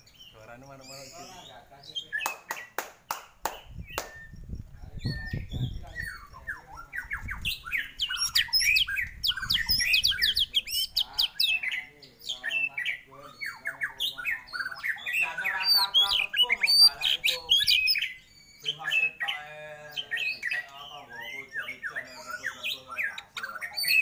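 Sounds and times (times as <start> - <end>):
bird singing whistled song: 3.5 - 24.0
bird rasping chatter: 5.0 - 24.0.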